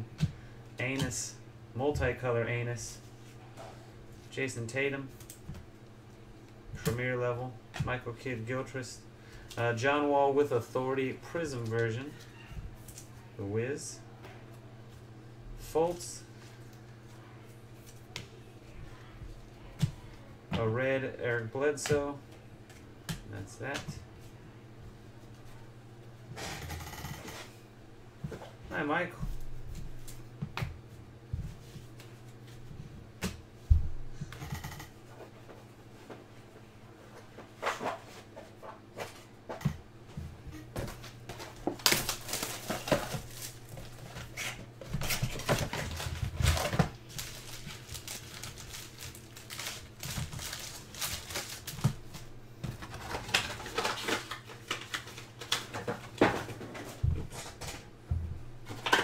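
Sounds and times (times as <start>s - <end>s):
foil wrapper crinkling: 41.5s - 44.4s, 45.0s - 52.0s.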